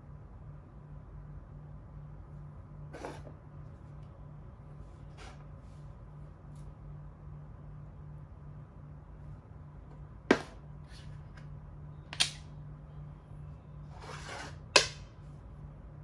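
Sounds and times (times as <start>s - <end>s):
piece sliding across board: 2.9s - 3.4s, 5.1s - 5.5s, 13.9s - 14.9s.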